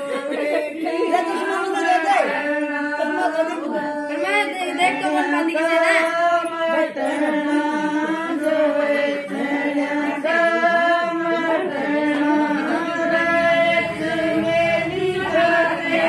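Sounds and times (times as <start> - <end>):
women singing together: 0.0 - 16.0.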